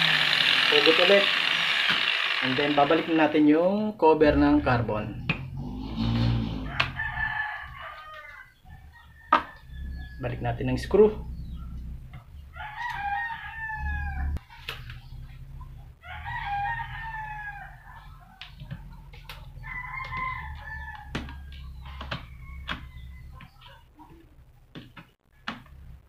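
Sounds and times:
rooster crowing: 6.0 - 10.3, 12.5 - 14.4, 16.0 - 23.6.

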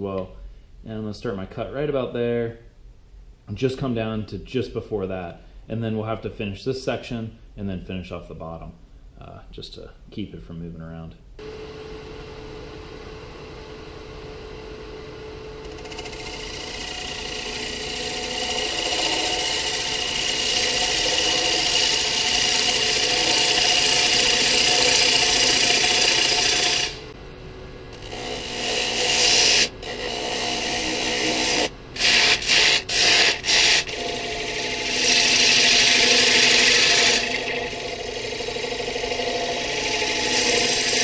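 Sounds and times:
wood lathe humming: 11.4 - 41.0
gouge shavings hissing: 15.8 - 27.1, 28.0 - 41.0.

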